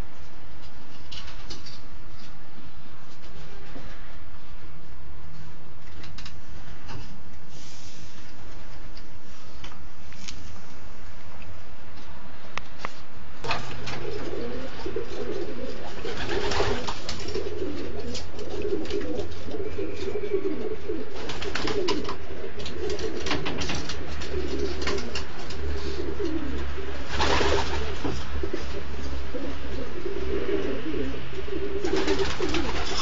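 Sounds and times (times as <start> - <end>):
pigeons cooing: 13.7 - 33.0.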